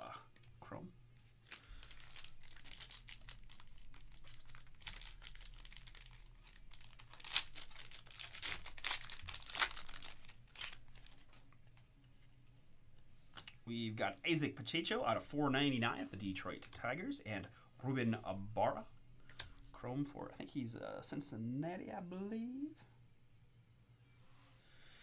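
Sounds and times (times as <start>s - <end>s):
sharp rips of foil: 1.4s - 11.2s
foil wrapper crinkling and tearing: 1.4s - 11.4s.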